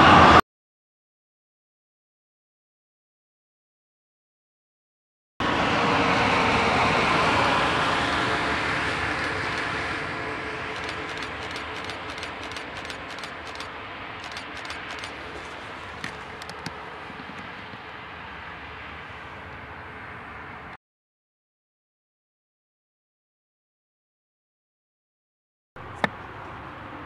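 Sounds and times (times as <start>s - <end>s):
locomotive wheels rolling on rails: 8.9s - 17.9s
light clicks from rails: 9.1s - 17.9s.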